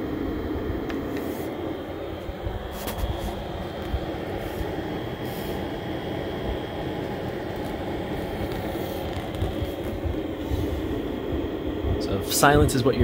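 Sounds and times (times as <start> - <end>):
computer fans rushing air: 0.0 - 13.0
thin high fan whine: 0.0 - 13.0.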